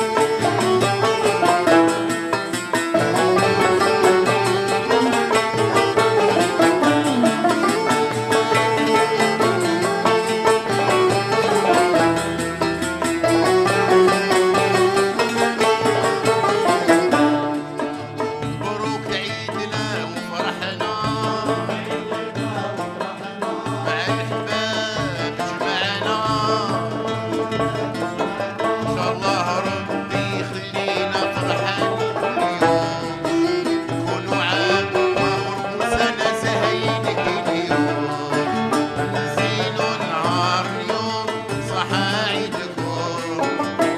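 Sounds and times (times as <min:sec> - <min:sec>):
man singing: 0:00.0 - 0:02.2, 0:02.9 - 0:12.3, 0:13.2 - 0:43.9
banjos keyboard and hand drums: 0:00.0 - 0:43.9.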